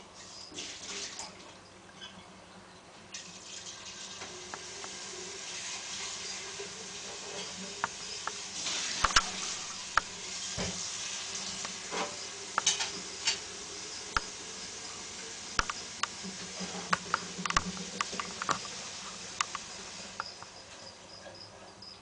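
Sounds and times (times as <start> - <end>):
steady hiss: 3.1 - 22.0
wood-chip bedding crackling: 4.4 - 20.9.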